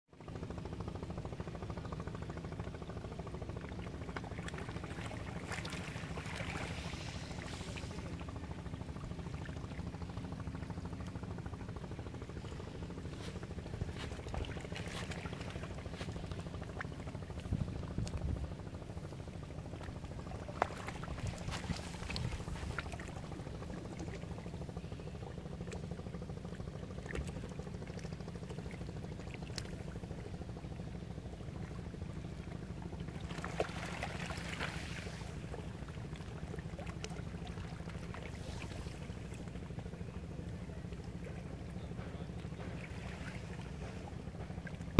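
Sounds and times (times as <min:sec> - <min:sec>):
low rumble: 0:03.5 - 0:25.1.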